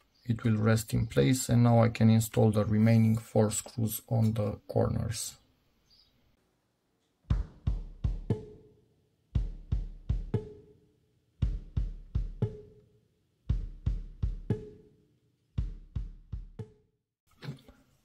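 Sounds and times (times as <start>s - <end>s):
drum beat with heavy low thump: 7.3s - 8.6s, 9.4s - 10.7s, 11.4s - 12.8s, 13.5s - 14.8s, 15.6s - 16.8s.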